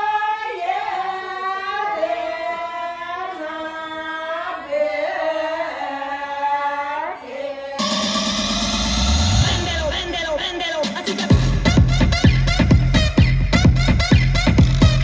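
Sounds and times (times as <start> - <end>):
women singing unaccompanied: 0.0 - 8.1.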